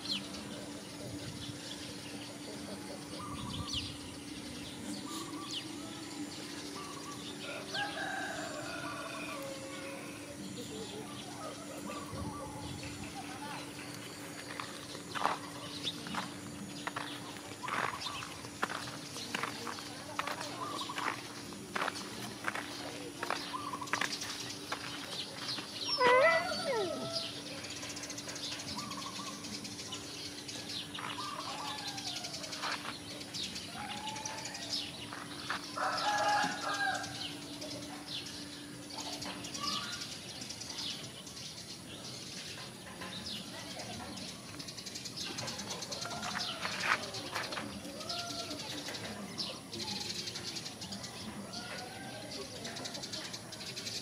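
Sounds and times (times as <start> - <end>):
birds calling: 0.0 - 54.0
footsteps on dirt: 13.6 - 26.7, 30.7 - 33.5, 34.2 - 36.6, 46.0 - 48.0.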